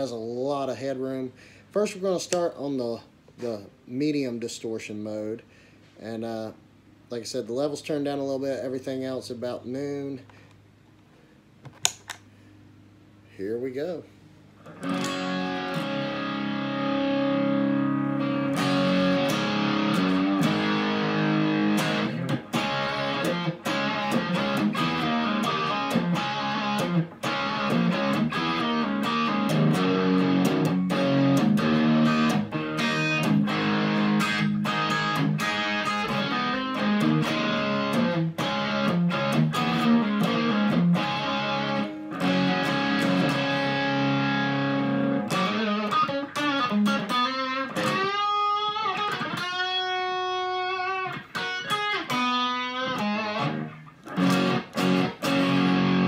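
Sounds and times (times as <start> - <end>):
distorted electric guitar riffing: 14.6 - 56.0.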